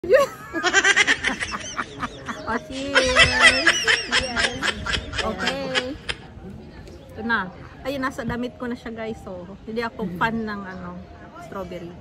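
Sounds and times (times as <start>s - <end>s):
women laughing: 0.0s - 6.3s.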